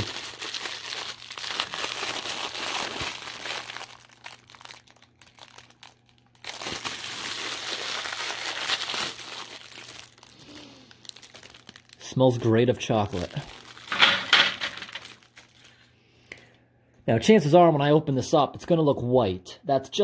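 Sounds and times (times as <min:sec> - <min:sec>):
cellophane bag crinkling: 0:00.0 - 0:15.9.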